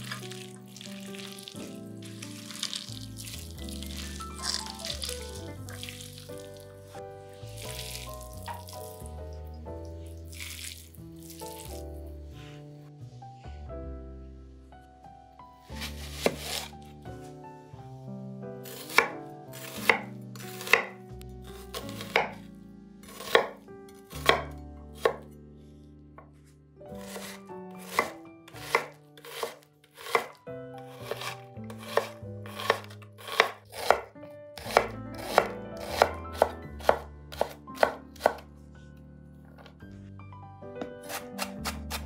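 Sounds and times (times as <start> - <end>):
knife chopping on wooden board: 15.8 - 16.7, 18.7 - 21.0, 21.6 - 22.4, 23.1 - 23.6, 24.2 - 25.2, 27.0 - 30.4, 31.0 - 38.4, 40.9 - 42.0.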